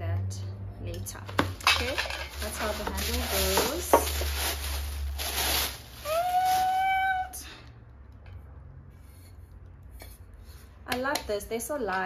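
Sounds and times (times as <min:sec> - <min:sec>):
plastic wrapping crinkling: 0:01.6 - 0:07.0
high-pitched call: 0:06.0 - 0:07.3.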